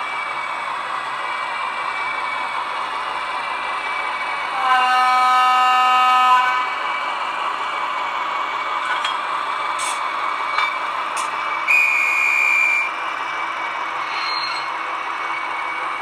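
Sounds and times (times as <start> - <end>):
model train running on track: 0.0 - 16.0
model train horn: 4.5 - 6.8, 11.7 - 12.9.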